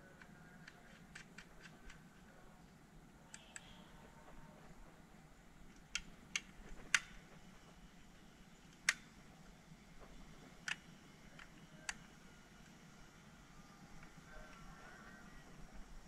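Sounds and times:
sharp plastic clicks: 0.1 - 2.3, 3.3 - 3.8, 5.7 - 7.4, 8.7 - 9.2, 10.2 - 12.8.

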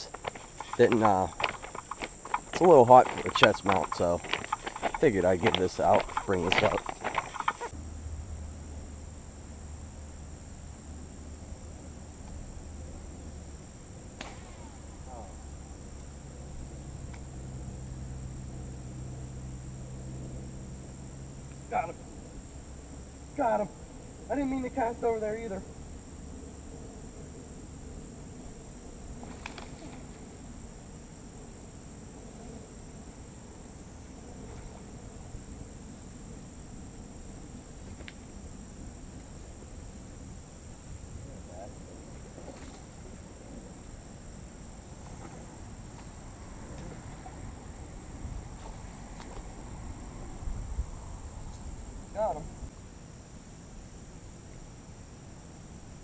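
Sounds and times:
faint clicks: 0.0 - 7.8
high insect buzzing: 0.0 - 8.0
crickets trilling: 0.0 - 56.0
insects chirring: 0.0 - 56.0
steady low hum: 0.0 - 56.0.

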